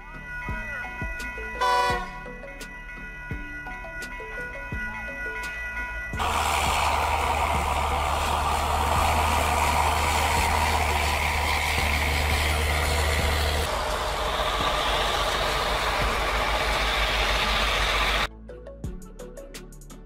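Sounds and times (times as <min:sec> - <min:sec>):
heavy engine drone: 0:06.2 - 0:18.3.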